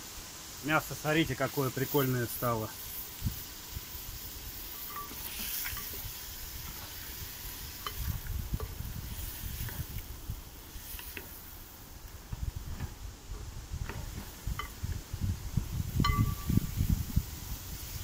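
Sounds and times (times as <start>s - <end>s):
meat sizzling in a pot: 0.0s - 18.0s
spatula scraping a pot: 4.8s - 10.0s.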